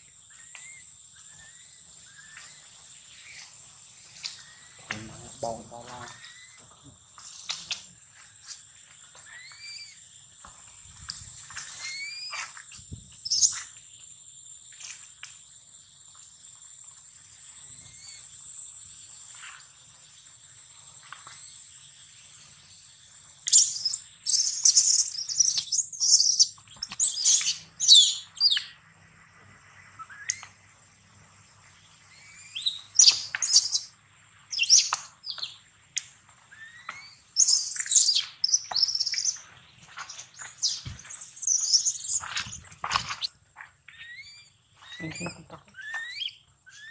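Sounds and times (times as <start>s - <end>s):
scattered chirps: 0.4s - 7.8s, 11.0s - 13.8s, 23.3s - 28.8s, 32.1s - 46.9s.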